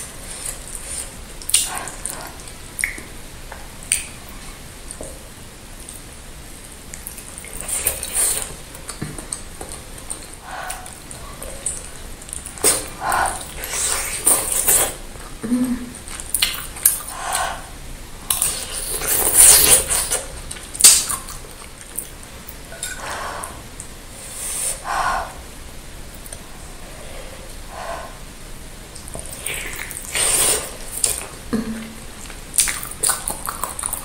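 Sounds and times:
wet chewing and slurping: 0:07.0 - 0:15.3, 0:16.0 - 0:23.6, 0:29.0 - 0:31.4, 0:32.2 - 0:34.0.

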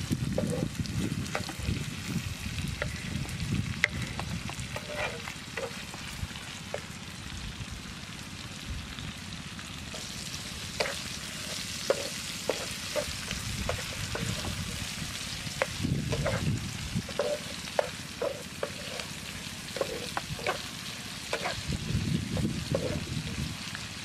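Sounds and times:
liver sizzling in a pan: 0:00.0 - 0:24.0
stirring clicks and scrapes: 0:00.4 - 0:00.7, 0:01.3 - 0:01.8, 0:02.8 - 0:06.9, 0:10.8 - 0:14.8, 0:15.6 - 0:20.7, 0:21.3 - 0:21.7, 0:22.4 - 0:23.1.

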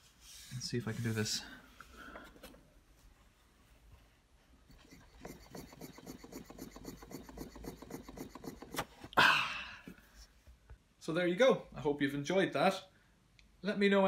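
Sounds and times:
model engine piston beat: 0:04.7 - 0:08.9.

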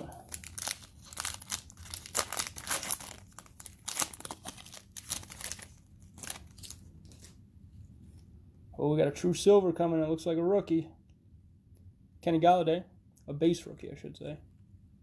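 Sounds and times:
foil wrapper crinkling: 0:00.0 - 0:07.4
foil wrapper tearing: 0:00.3 - 0:07.3.

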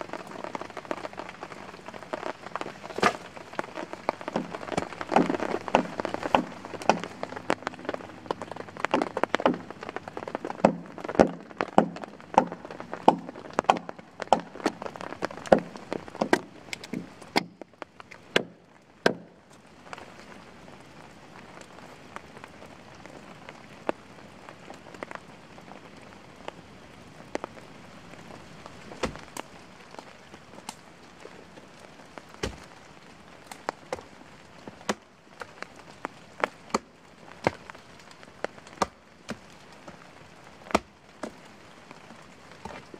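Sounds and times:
steady rain falling: 0:00.0 - 0:42.9
hatchet chopping log: 0:02.9 - 0:03.3, 0:04.3 - 0:07.2, 0:09.3 - 0:09.7, 0:10.5 - 0:14.8, 0:15.5 - 0:17.6, 0:18.3 - 0:19.3, 0:29.0 - 0:29.3, 0:32.4 - 0:32.7, 0:34.8 - 0:35.0, 0:36.7 - 0:37.6, 0:38.6 - 0:39.4, 0:40.7 - 0:41.4.

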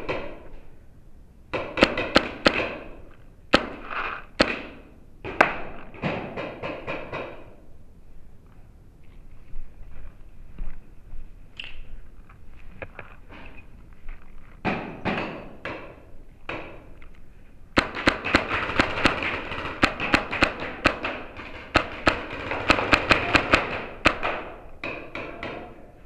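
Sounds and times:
paintball markers firing: 0:01.5 - 0:07.6, 0:17.8 - 0:25.8.

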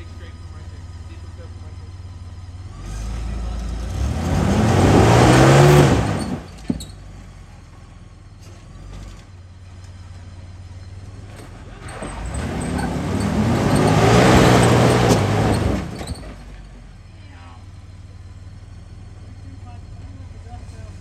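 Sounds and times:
engine revving hard: 0:02.6 - 0:06.6, 0:11.6 - 0:16.4.

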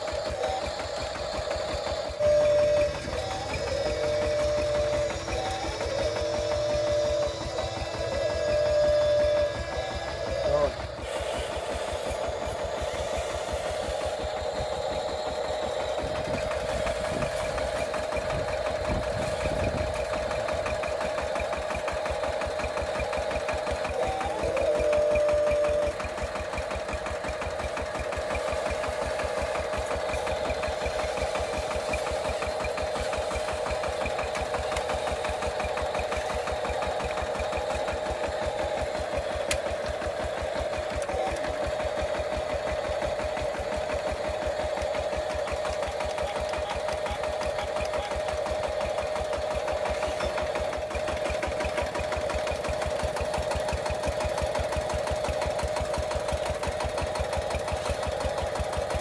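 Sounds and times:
small electric motor whirring: 0:00.0 - 0:57.2.

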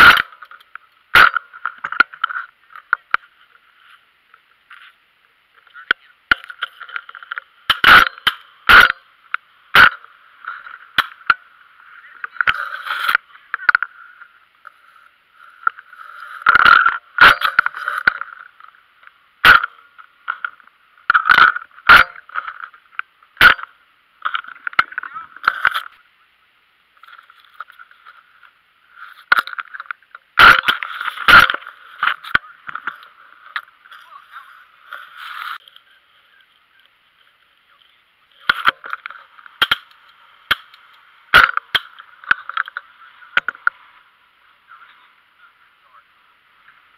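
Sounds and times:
steady hiss: 0:00.0 - 0:46.9.

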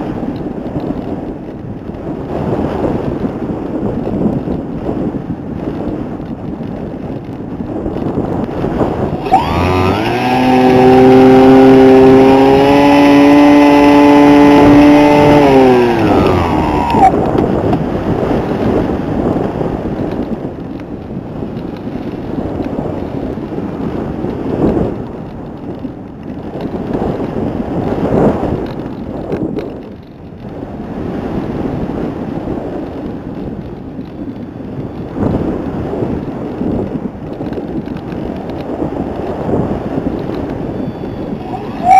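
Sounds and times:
helicopter rotor and wind rush: 0:00.0 - 0:41.9
pitched motor drone: 0:09.2 - 0:17.3, 0:41.1 - 0:41.9.

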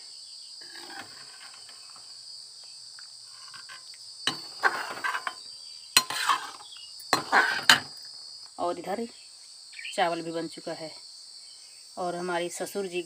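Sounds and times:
insect chirring: 0:00.0 - 0:13.0
ladle scraping a metal pan: 0:00.6 - 0:02.2, 0:03.3 - 0:05.4, 0:06.0 - 0:08.0.

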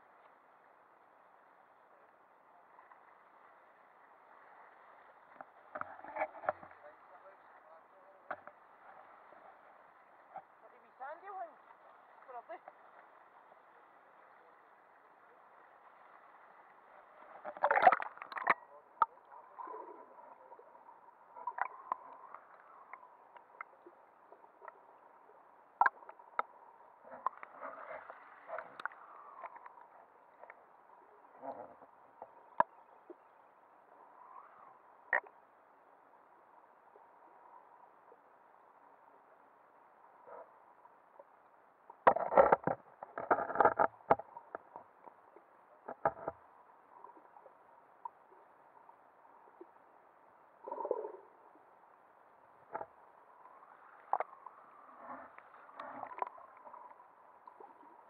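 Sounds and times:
faint steady hum: 0:00.0 - 0:58.0
muffled underwater hiss: 0:00.0 - 0:58.0
soft clicks and ticks: 0:05.3 - 0:06.9, 0:08.2 - 0:08.6, 0:17.2 - 0:20.7, 0:21.4 - 0:25.2, 0:25.8 - 0:30.7, 0:31.3 - 0:33.2, 0:35.1 - 0:35.4, 0:41.9 - 0:48.4, 0:52.7 - 0:58.0.

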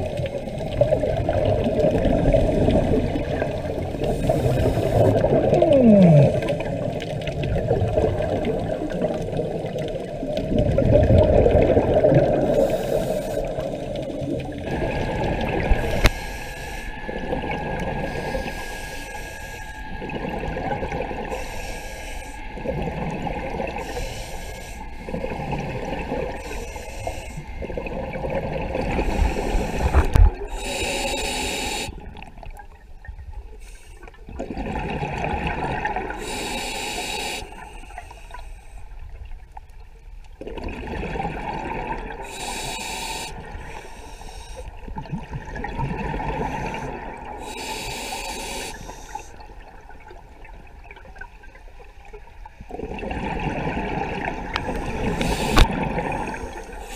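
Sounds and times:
gurgling exhaled bubbles: 0:00.0 - 0:16.2, 0:17.1 - 0:18.6, 0:22.6 - 0:24.1, 0:25.1 - 0:32.7, 0:34.3 - 0:36.4, 0:40.4 - 0:42.3, 0:44.8 - 0:47.6, 0:52.7 - 0:56.9
diver breathing through regulator: 0:03.9 - 0:06.8, 0:12.4 - 0:14.0, 0:15.6 - 0:17.2, 0:18.0 - 0:19.9, 0:21.3 - 0:22.5, 0:23.8 - 0:27.6, 0:28.9 - 0:32.0, 0:36.1 - 0:38.9, 0:42.2 - 0:44.8, 0:46.2 - 0:49.5, 0:54.5 - 0:56.9.

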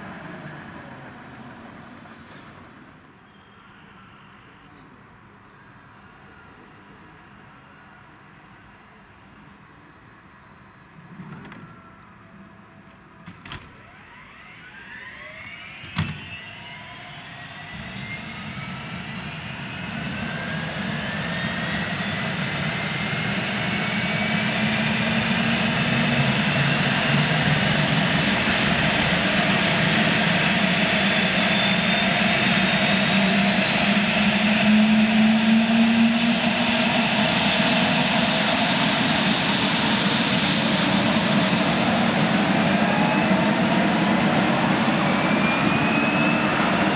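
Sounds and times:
helicopter turbines whining: 0:13.7 - 0:46.9.

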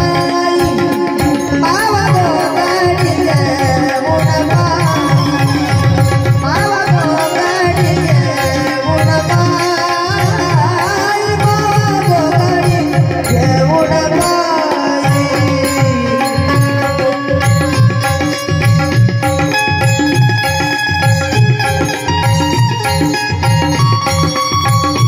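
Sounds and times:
woman singing: 0:00.0 - 0:18.1
tabla rhythm: 0:00.0 - 0:25.0.

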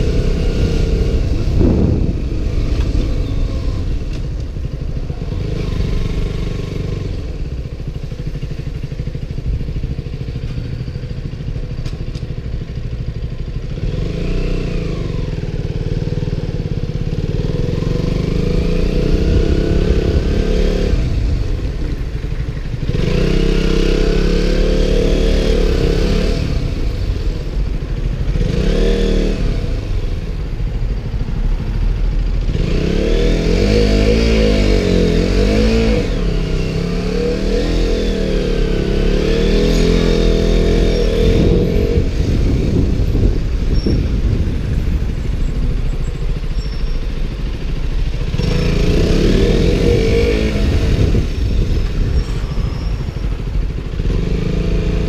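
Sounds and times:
wind buffeting microphone: 0:00.0 - 0:06.0, 0:40.2 - 0:46.5, 0:48.2 - 0:54.6
motorcycle engine accelerating: 0:00.0 - 0:55.0.

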